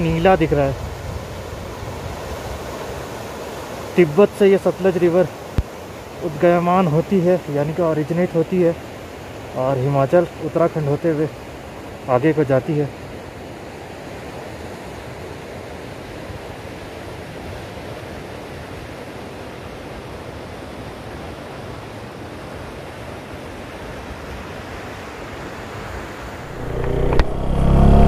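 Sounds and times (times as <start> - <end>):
river water rushing: 0.0 - 28.0
motorcycle engine: 26.5 - 28.0.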